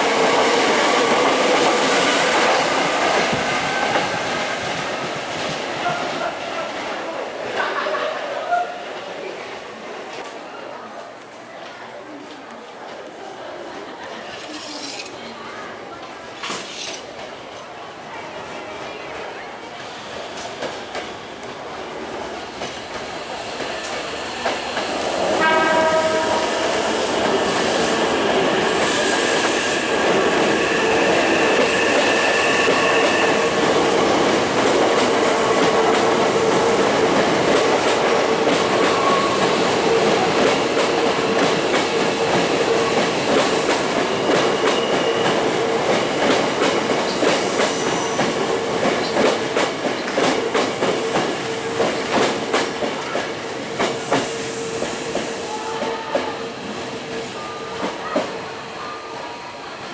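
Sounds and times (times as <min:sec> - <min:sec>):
train wheels clacking: 0:19.8 - 0:58.4
electric train hum: 0:20.0 - 0:59.9
train horn: 0:25.4 - 0:26.7, 0:54.4 - 0:56.7.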